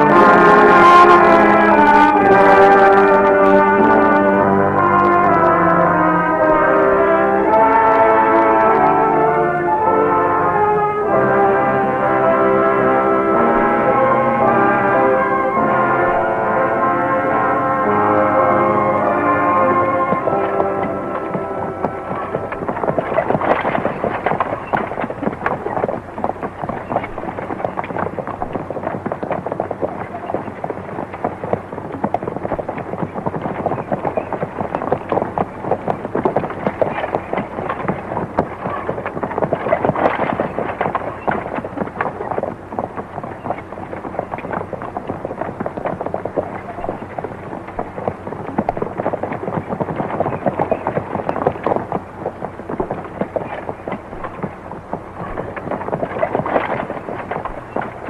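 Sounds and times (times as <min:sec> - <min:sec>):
hooves clattering: 0:00.0 - 0:09.2, 0:11.1 - 0:58.0
wagon wheels clattering: 0:18.6 - 0:58.0.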